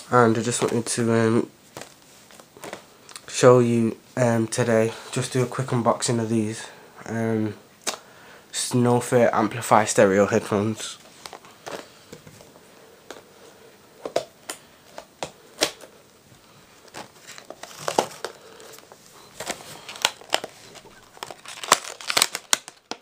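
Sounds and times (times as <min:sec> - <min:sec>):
packaging crinkling: 0:01.7 - 0:03.2, 0:11.2 - 0:11.9, 0:16.8 - 0:23.0.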